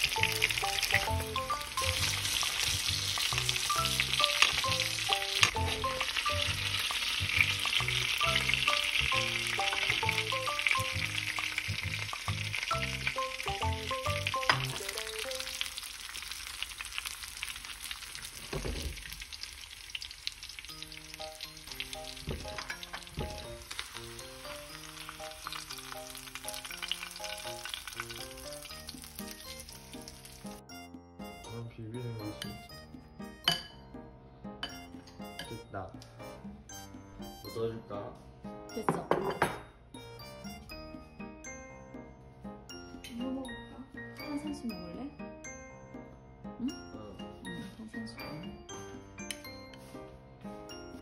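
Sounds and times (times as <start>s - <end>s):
light background music: 0.0s - 15.8s, 20.6s - 51.0s
fish frying in a pan: 0.0s - 30.6s.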